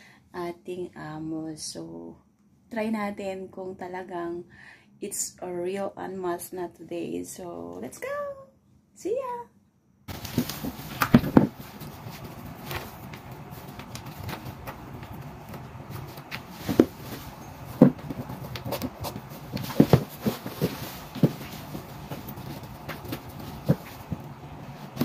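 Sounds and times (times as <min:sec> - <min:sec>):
low steady hum: 0:00.0 - 0:25.0
handling rustles: 0:10.1 - 0:25.0.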